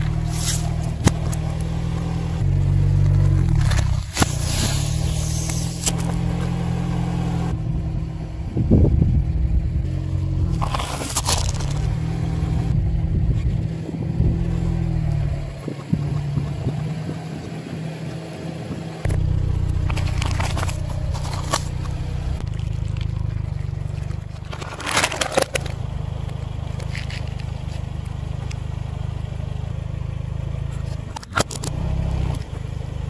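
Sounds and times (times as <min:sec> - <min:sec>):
car engine humming: 0:00.0 - 0:33.0
tyre crushing food: 0:10.5 - 0:11.9, 0:23.9 - 0:25.8.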